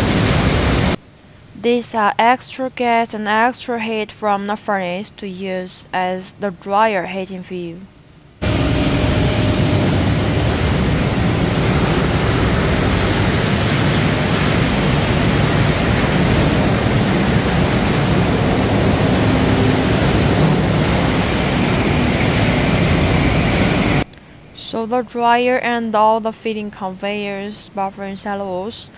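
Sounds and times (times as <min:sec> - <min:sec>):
gas burner and blower roaring: 0:00.0 - 0:01.0, 0:08.4 - 0:24.1
low machine hum: 0:08.3 - 0:24.1.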